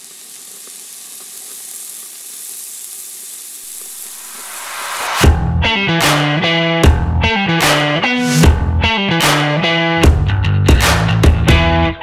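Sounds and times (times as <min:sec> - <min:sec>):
sizzling hiss with crackles: 0:00.0 - 0:05.3
distorted electric guitar music: 0:03.8 - 0:12.0.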